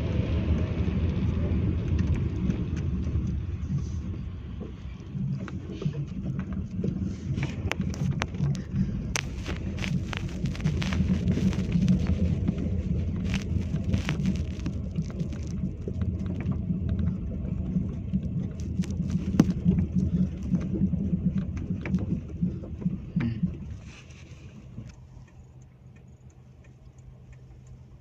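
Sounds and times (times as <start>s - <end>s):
stones clicking and knocking: 7.4s - 16.5s, 18.6s - 19.6s
tyre rumble on gravel: 9.2s - 15.6s, 18.6s - 19.7s.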